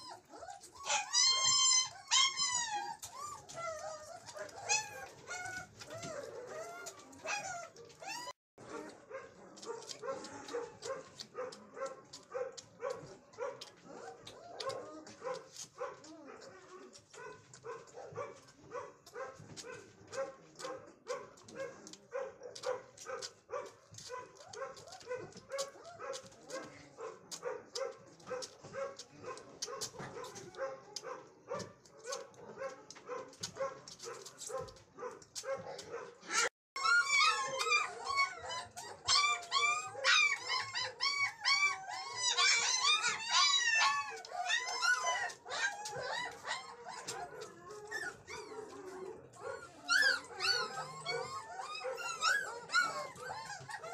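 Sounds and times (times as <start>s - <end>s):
puppy whining cries: 0.0s - 8.4s, 36.3s - 53.9s
puppy whimpering grunts: 36.3s - 53.9s.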